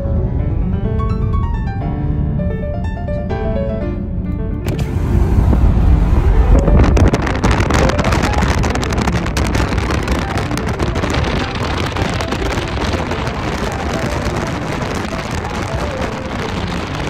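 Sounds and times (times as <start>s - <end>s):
car road and wind noise: 0.0s - 17.0s
small crackles: 6.9s - 17.0s.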